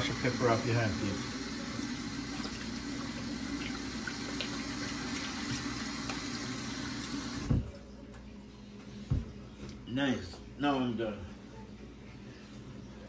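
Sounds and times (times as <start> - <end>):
tap water running: 0.0 - 7.8.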